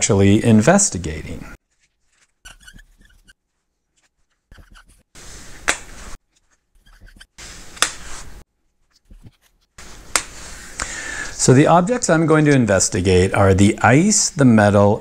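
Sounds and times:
cards sliding and clicking on board: 5.2s - 6.6s, 7.4s - 8.4s, 9.1s - 11.4s.

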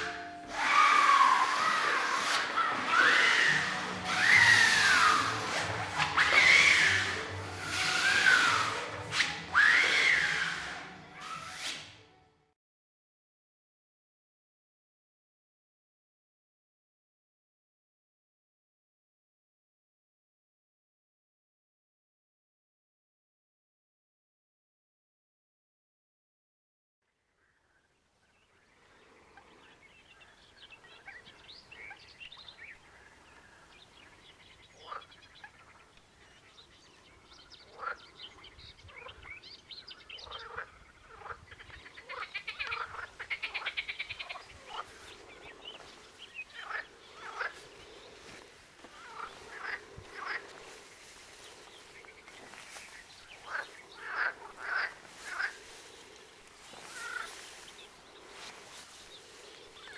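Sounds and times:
birds calling: 27.4s - 59.9s
frogs croaking: 46.4s - 47.6s, 53.4s - 56.0s.

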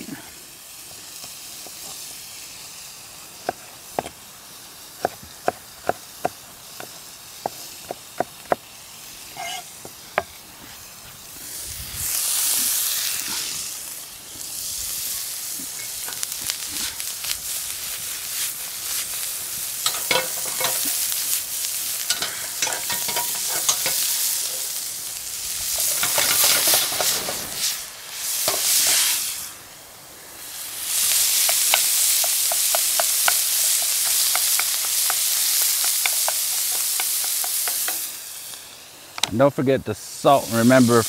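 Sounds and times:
flames flaring up: 0.0s - 39.4s
food sizzling in hot oil: 0.0s - 41.0s
skillet clattering: 19.8s - 21.0s, 22.1s - 24.1s, 25.8s - 27.4s, 31.5s - 38.1s.

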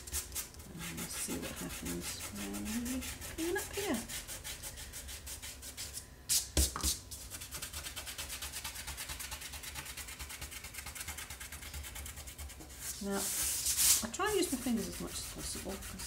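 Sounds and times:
fingers rubbing paper: 12.9s - 16.0s.

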